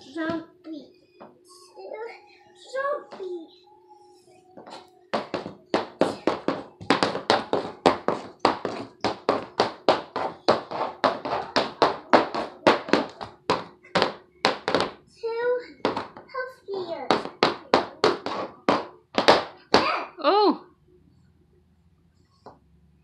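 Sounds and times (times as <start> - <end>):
high heels clacking on wood floor: 4.6 - 15.0, 15.8 - 16.3, 17.1 - 19.9.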